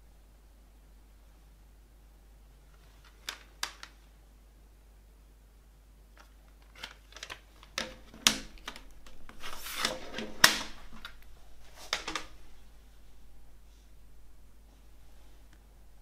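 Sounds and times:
paper rustling: 6.2s - 12.7s
plastic case clicking: 11.9s - 12.4s.

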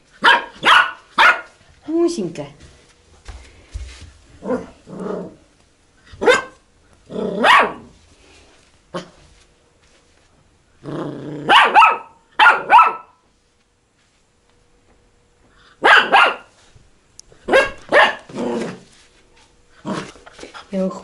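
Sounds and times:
puppy barking: 0.2s - 1.5s, 6.2s - 6.6s, 7.4s - 7.9s, 11.5s - 13.2s, 15.8s - 16.5s, 17.5s - 18.4s
puppy growling: 4.4s - 5.5s, 7.0s - 7.9s, 10.8s - 11.6s, 18.2s - 18.9s, 19.8s - 20.6s.

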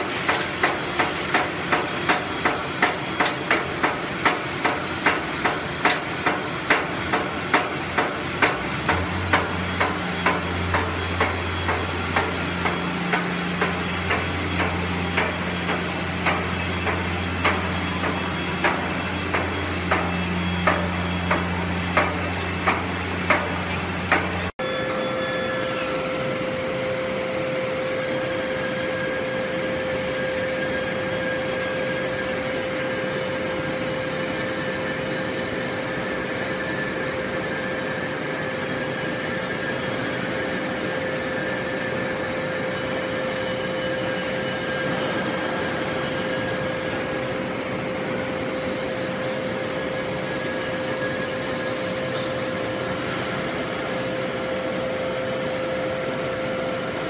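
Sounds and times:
power hammer striking: 0.0s - 26.9s
low machine hum: 0.0s - 57.0s.

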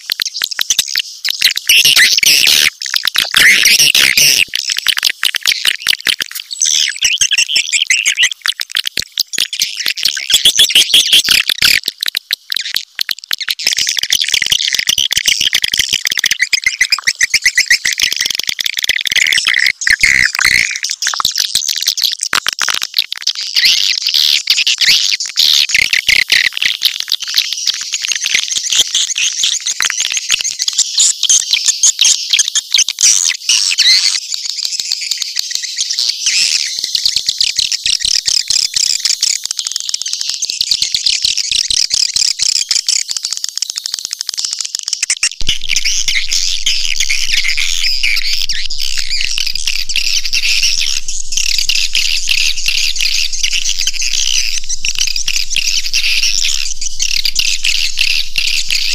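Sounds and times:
swiftlets twittering: 45.1s - 58.9s
low hum: 45.4s - 58.9s.

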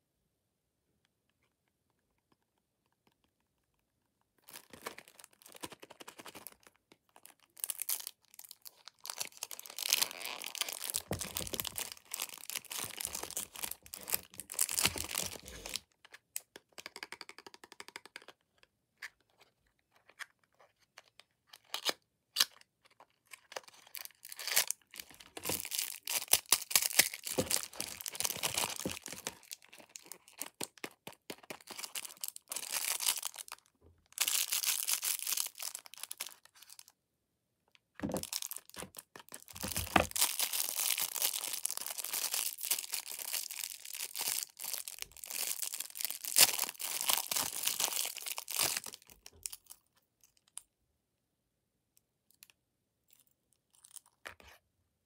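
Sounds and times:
plastic film tearing and crinkling: 7.6s - 15.8s, 24.2s - 30.6s, 38.2s - 49.0s.

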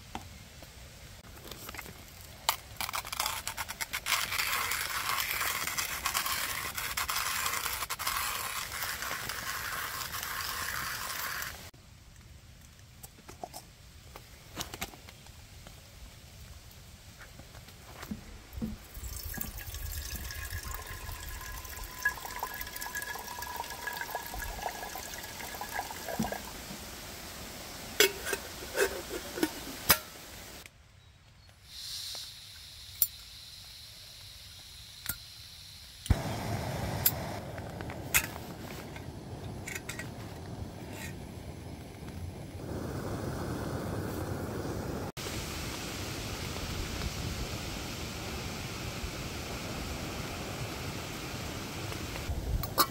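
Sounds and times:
water pouring into metal kettle: 18.8s - 26.6s
gas burner hissing: 31.7s - 52.9s.

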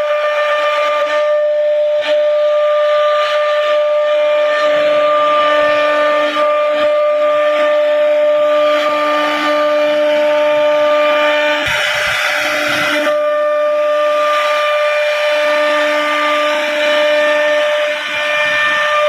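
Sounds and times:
cnc router spindle whine: 0.0s - 19.0s
bit cutting wood hiss: 9.3s - 19.0s.

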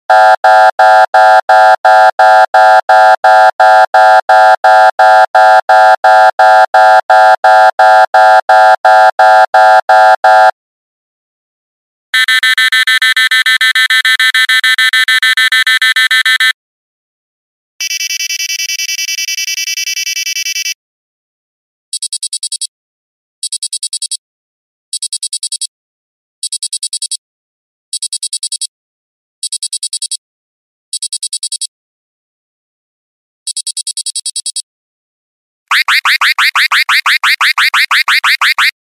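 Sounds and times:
warbling beep alarm: 0.1s - 10.5s, 12.2s - 16.6s, 17.8s - 20.8s, 35.7s - 38.8s
pulsing buzzing alarm: 0.1s - 10.6s, 12.2s - 16.5s, 35.7s - 38.8s
short bursts of high beeps: 17.8s - 20.8s, 35.7s - 38.7s
rapid high beeping: 35.7s - 38.7s.

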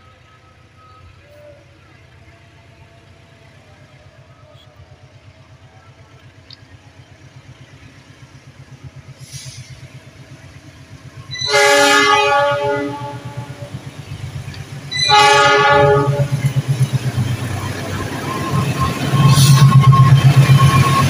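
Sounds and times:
diesel locomotive engine throbbing: 0.0s - 21.0s
locomotive horn blast: 11.3s - 13.8s, 14.9s - 16.7s.

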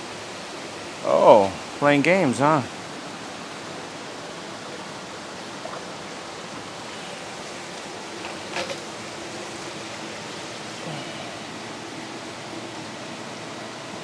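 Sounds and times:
aquarium water rushing hiss: 0.0s - 14.0s.

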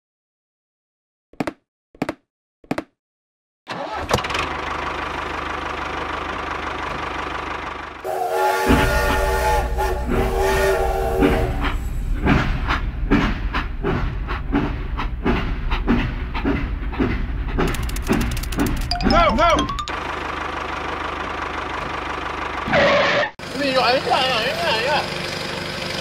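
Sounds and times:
rhythmic train chuffing: 6.2s - 22.6s
toy train steam whistle: 8.0s - 11.8s.

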